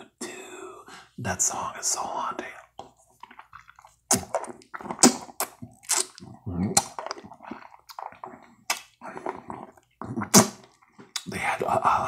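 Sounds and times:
mouth sucking lollipop: 2.4 - 11.7.

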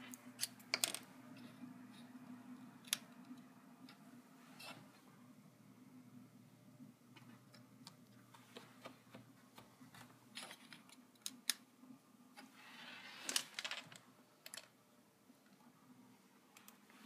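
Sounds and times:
small tools handled on a desk: 8.5 - 11.4.

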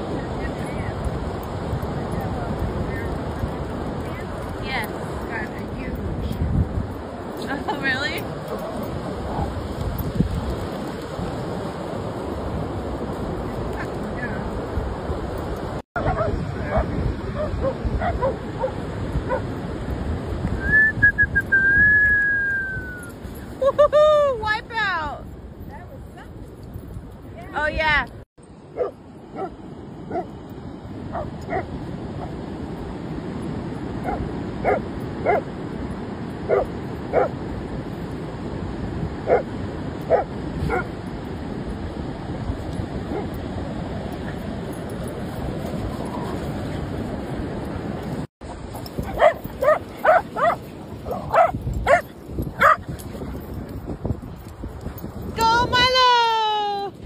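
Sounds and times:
dog barking: 16.0 - 19.4, 28.8 - 30.3, 31.1 - 31.7, 34.0 - 35.5, 36.5 - 37.3, 39.3 - 39.5, 40.1 - 40.9, 49.1 - 52.8.

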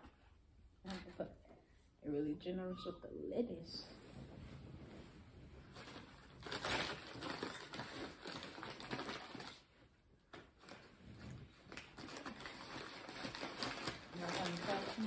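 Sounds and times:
paper wrapper rustling: 5.7 - 15.0.

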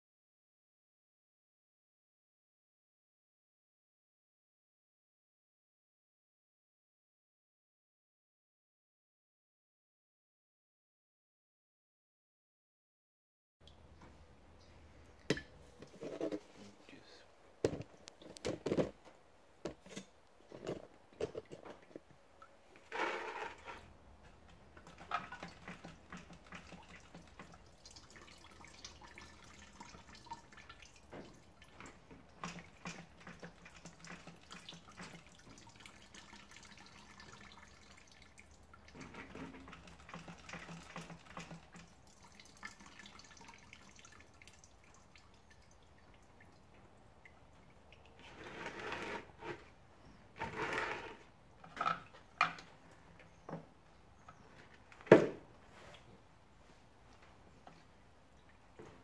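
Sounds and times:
fuel dripping into container: 25.0 - 48.2.

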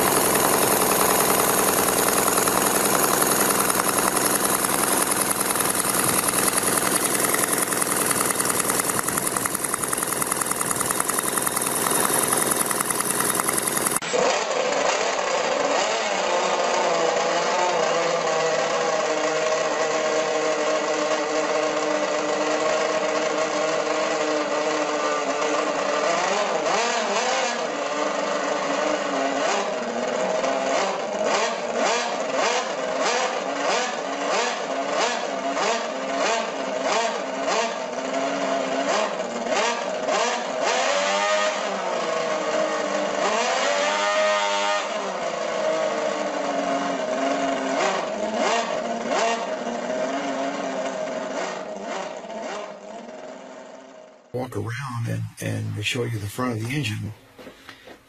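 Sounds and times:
model engine revving: 0.0 - 15.1.

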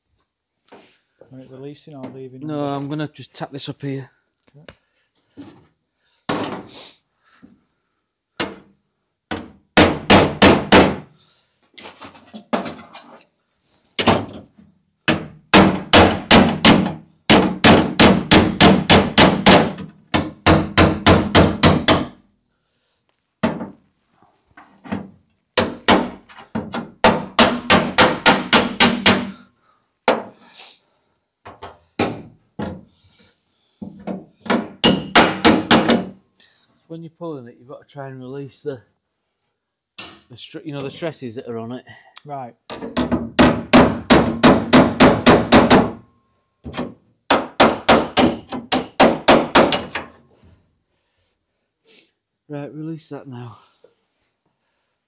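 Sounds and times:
hammer tapping steel panel: 46.7 - 50.1.

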